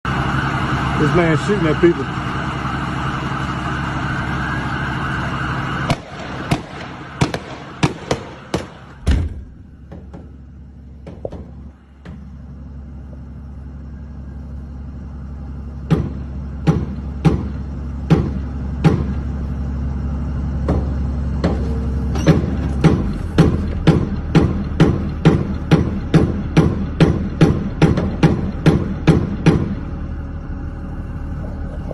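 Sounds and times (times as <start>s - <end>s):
gunshots: 5.9s - 9.3s.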